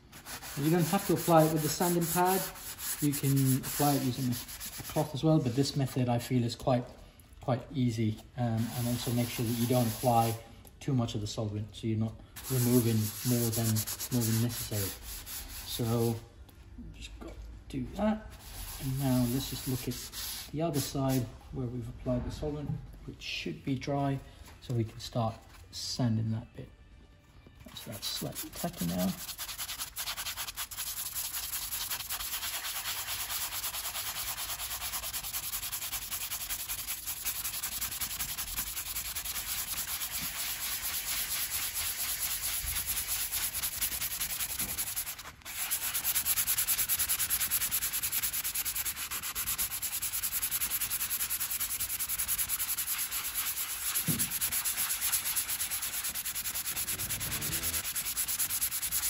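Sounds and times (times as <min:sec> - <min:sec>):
sanding pad rubbing: 0:00.0 - 0:05.1, 0:08.6 - 0:10.4, 0:12.4 - 0:15.8, 0:18.4 - 0:21.0, 0:27.8 - 0:59.0.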